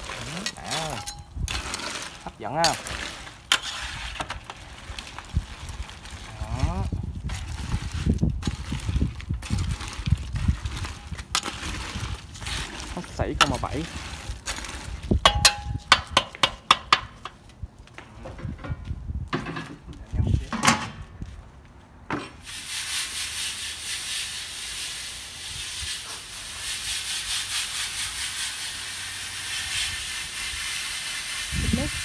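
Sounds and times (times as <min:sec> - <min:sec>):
hose spraying water on pot: 0:00.0 - 0:15.9, 0:22.4 - 0:32.0.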